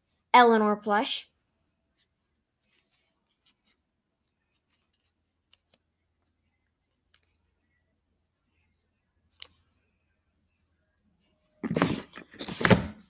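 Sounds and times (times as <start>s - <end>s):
plush toy and card tag rustling: 4.4s - 5.8s.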